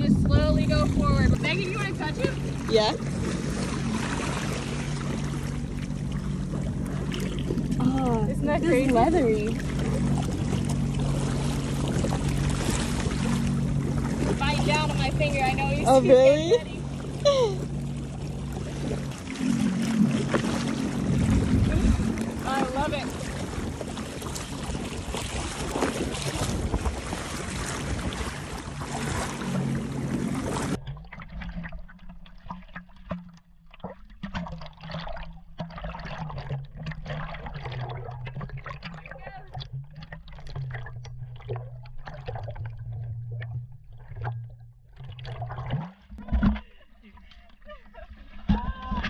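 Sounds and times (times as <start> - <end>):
wind buffeting microphone: 0.0 - 4.8, 20.0 - 30.8
low hum: 0.0 - 49.0
water splashing against hull: 0.0 - 49.0.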